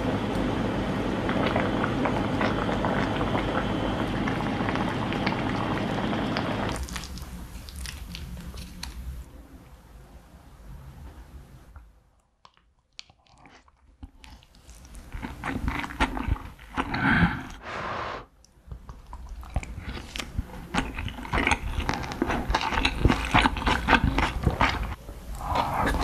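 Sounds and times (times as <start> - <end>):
close chewing with mouth smacks: 6.7 - 9.0, 12.4 - 17.0, 18.7 - 26.0.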